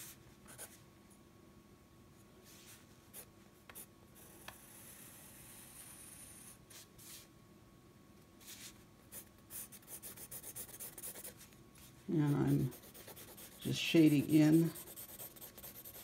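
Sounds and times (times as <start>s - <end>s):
pencil scratching on paper: 9.1s - 11.4s, 12.2s - 16.0s.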